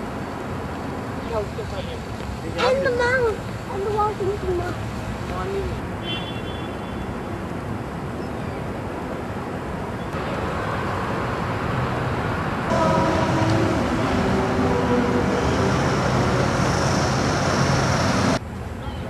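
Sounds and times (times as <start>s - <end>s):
city street traffic: 0.0s - 19.0s
vehicle engine humming: 10.2s - 18.6s.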